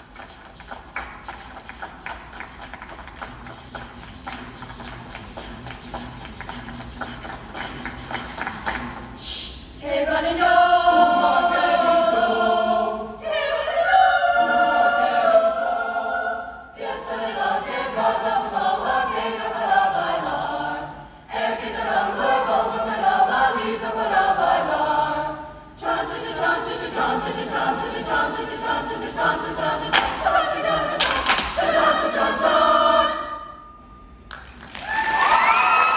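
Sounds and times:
rhythmic clapping: 0:00.0 - 0:09.2, 0:27.8 - 0:32.6, 0:34.3 - 0:35.9
choir singing a cappella: 0:07.0 - 0:33.8.

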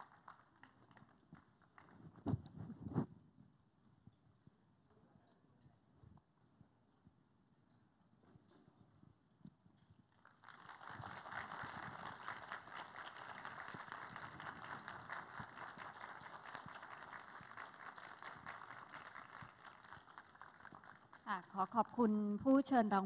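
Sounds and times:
audience applause: 0:00.0 - 0:02.0, 0:10.2 - 0:21.8.

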